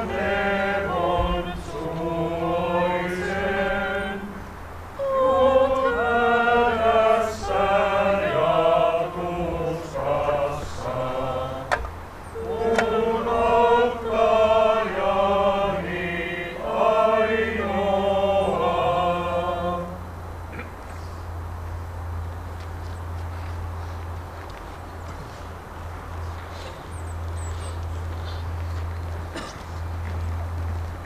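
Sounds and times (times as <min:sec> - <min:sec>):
congregation singing a hymn: 0:00.0 - 0:20.2.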